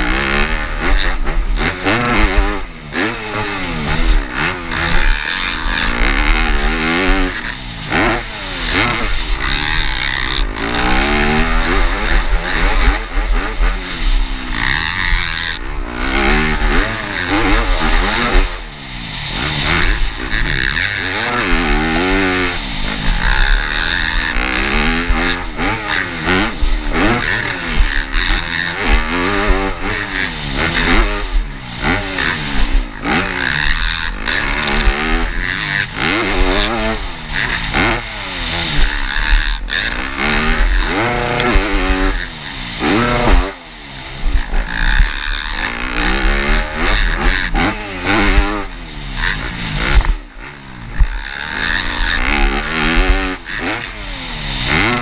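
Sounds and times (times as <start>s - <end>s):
motocross bike engine revving: 0.0s - 55.0s
steady rushing hiss: 15.6s - 25.5s.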